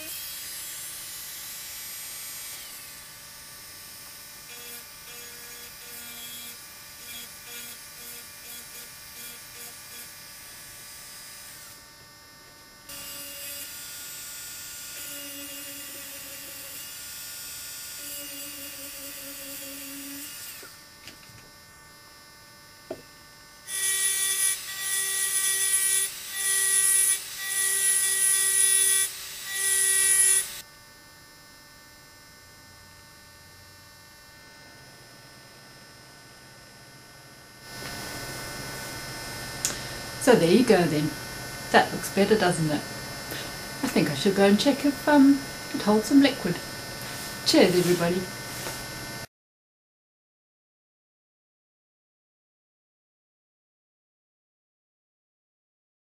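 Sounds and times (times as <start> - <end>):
rotary engraving tool whining: 0.0 - 21.0, 22.3 - 30.7.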